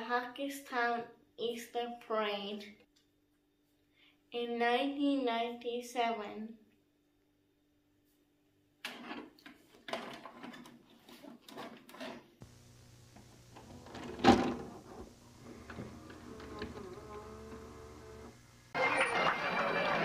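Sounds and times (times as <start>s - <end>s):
loading motor whir: 12.4s - 18.8s
steady hum: 12.4s - 19.0s
machine clunk: 13.1s - 18.3s
cassette clicks and knocks: 13.2s - 17.8s.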